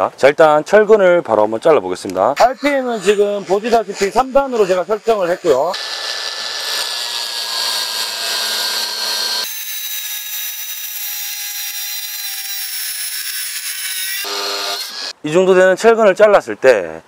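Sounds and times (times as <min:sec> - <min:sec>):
angle grinder cutting steel bar: 0:02.4 - 0:15.2.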